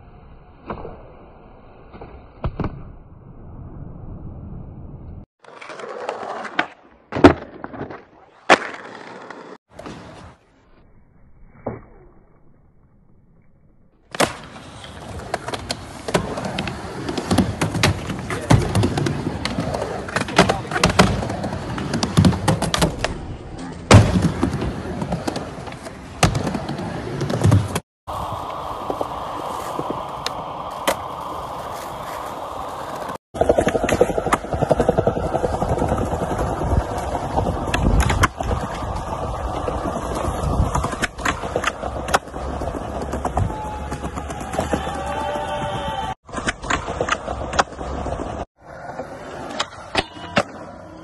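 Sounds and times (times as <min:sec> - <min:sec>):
skateboard wheels rolling on ramp: 0:05.1 - 0:10.5, 0:14.1 - 0:51.0
skateboard clacking: 0:23.9 - 0:51.0.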